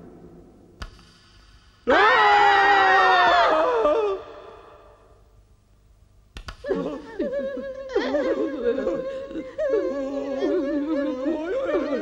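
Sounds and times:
wordless voices wavering: 6.7 - 12.0.

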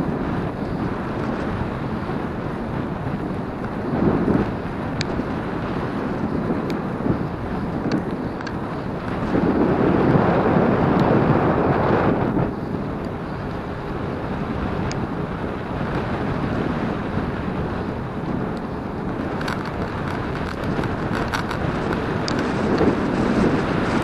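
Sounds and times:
road noise: 0.0 - 24.0
wind on microphone: 0.0 - 24.0.

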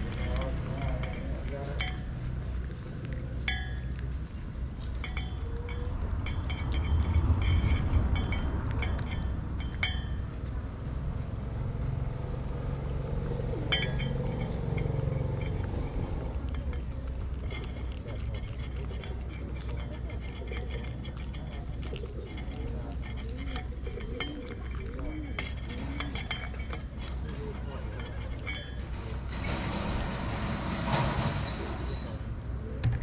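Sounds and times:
light clinks and clicks: 0.0 - 11.0, 11.7 - 29.9
road traffic rumble: 0.0 - 33.0
vehicle passing: 5.6 - 20.8.

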